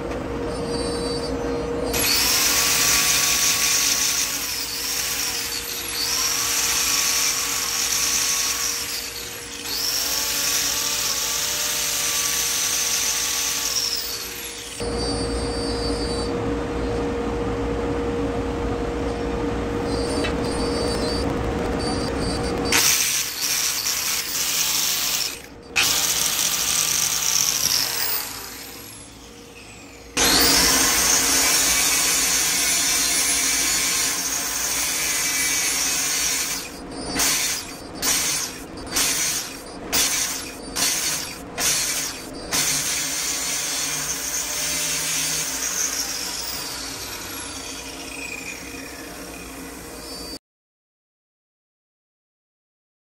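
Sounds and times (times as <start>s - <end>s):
power tools working on steel: 0.7s - 15.1s, 22.7s - 50.4s.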